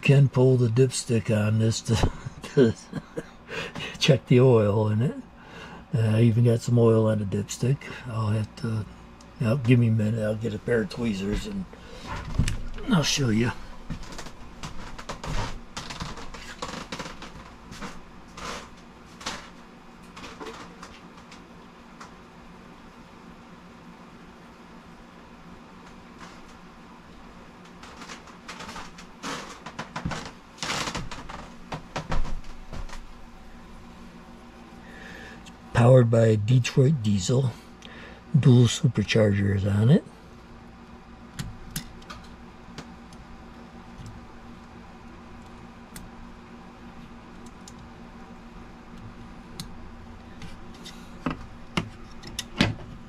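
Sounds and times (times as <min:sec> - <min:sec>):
steady low hum: 0:00.0 - 0:53.0
objects rustling and clattering: 0:13.6 - 0:21.5, 0:27.5 - 0:34.7.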